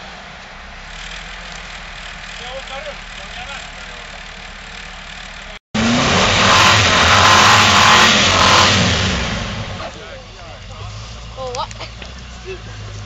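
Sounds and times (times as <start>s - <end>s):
low engine sound: 0.0s - 13.0s
wheels churning through snow: 0.0s - 13.0s
engine revving hard: 0.9s - 10.1s.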